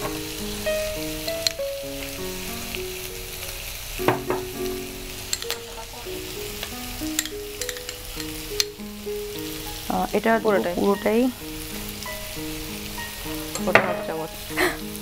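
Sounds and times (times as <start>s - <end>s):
slow background music: 0.0s - 15.0s
vegetables sizzling in a frying pan: 0.0s - 15.0s
spoon clinking against glass: 5.3s - 5.8s, 7.1s - 8.4s.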